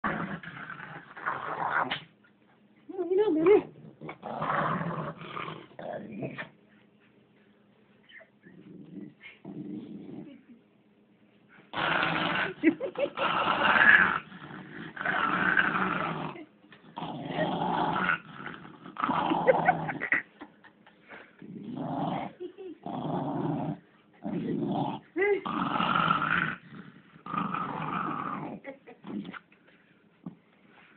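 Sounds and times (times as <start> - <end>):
small dog play-growling: 0.0 - 2.1, 3.4 - 6.6, 8.1 - 10.5, 11.7 - 20.2, 21.4 - 29.5.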